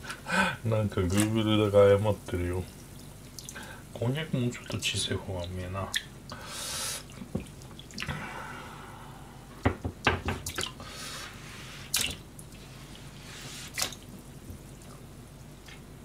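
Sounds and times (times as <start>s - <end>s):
liquid dripping and splashing: 2.6s - 3.8s, 4.6s - 6.4s, 7.0s - 8.2s, 10.3s - 10.9s, 11.9s - 16.0s.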